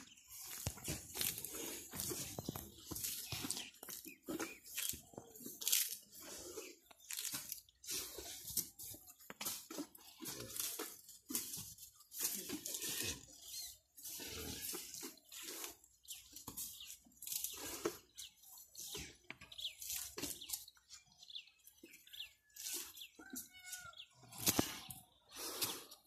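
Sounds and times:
elephants tearing and chewing grass: 0.0 - 26.0.

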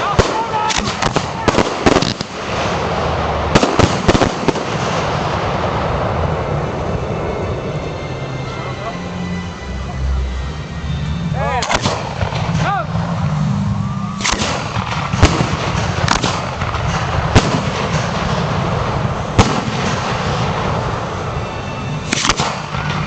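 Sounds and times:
fireworks bangs: 0.0 - 7.2, 11.6 - 23.0
voices of onlookers: 8.2 - 11.8.

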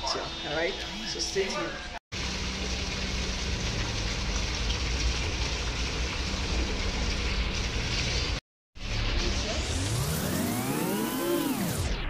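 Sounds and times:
water splashing on concrete: 2.1 - 8.4.

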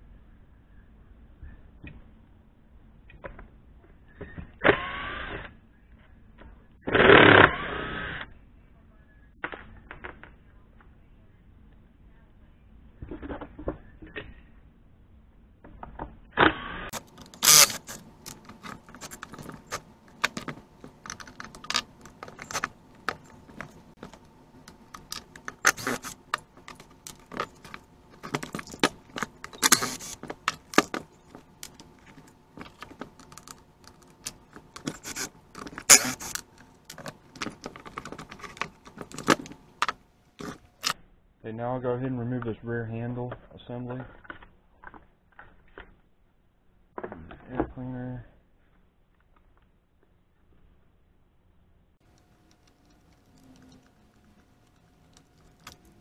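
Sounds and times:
chainsaw parts clattering and scraping: 16.9 - 41.0.

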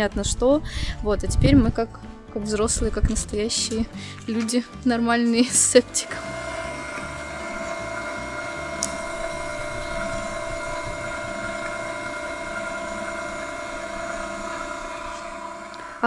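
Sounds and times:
juicer motor whine: 5.4 - 16.0
low grinding of fruit: 5.9 - 16.0.

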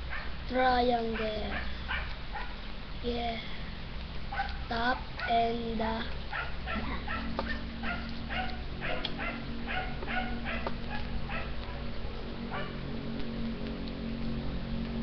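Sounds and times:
steady low hum: 0.0 - 15.0
dog yipping: 1.2 - 2.6, 4.3 - 5.4, 6.3 - 11.9, 12.5 - 12.8.

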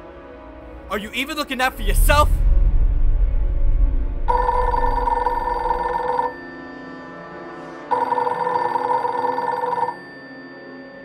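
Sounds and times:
telephone ringing: 4.3 - 6.6, 7.9 - 11.0.

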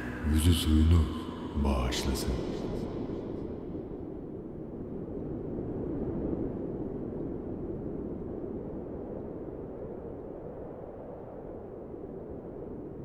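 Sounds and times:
low rumble of noise: 0.0 - 10.8.

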